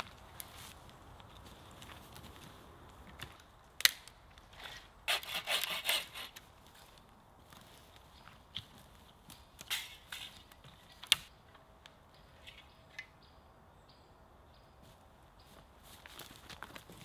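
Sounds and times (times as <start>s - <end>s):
footsteps crunching through bracken: 0.0s - 5.0s, 6.3s - 11.3s, 14.8s - 17.0s.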